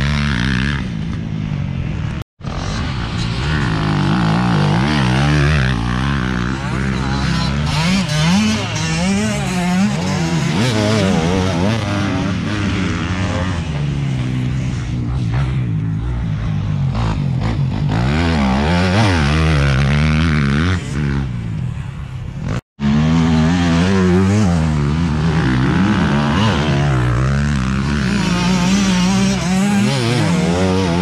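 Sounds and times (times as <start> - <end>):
dirt bike engines revving: 0.0 - 31.0.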